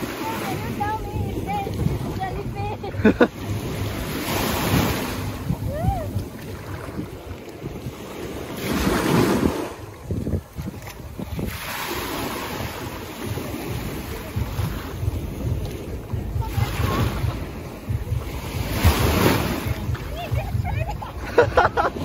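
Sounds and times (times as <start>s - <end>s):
small waves washing: 0.0s - 22.0s
wind buffeting microphone: 0.0s - 22.0s.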